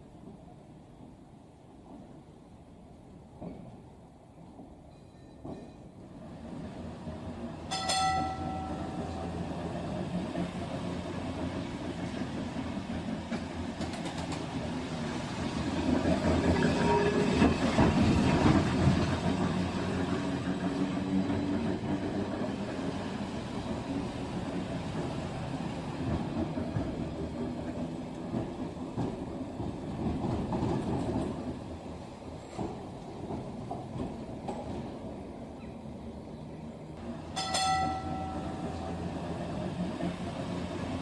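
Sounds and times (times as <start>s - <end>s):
tram rumbling on rails: 0.0s - 41.0s.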